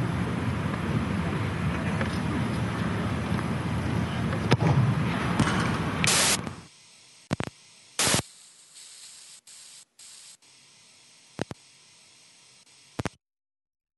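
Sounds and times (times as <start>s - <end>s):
static hiss: 5.9s - 13.2s
sharp clicks: 6.0s - 6.6s, 7.2s - 10.4s, 11.1s - 11.7s, 12.5s - 13.2s.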